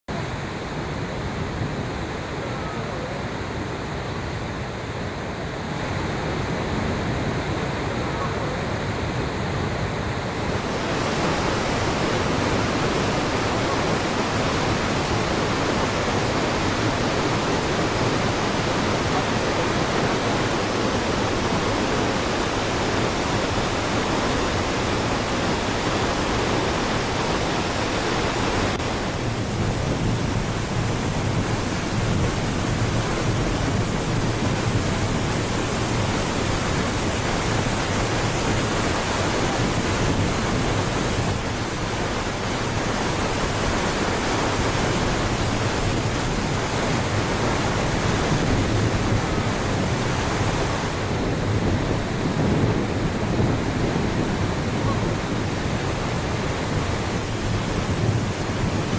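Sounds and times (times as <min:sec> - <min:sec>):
waterfall rushing: 0:00.1 - 0:58.9.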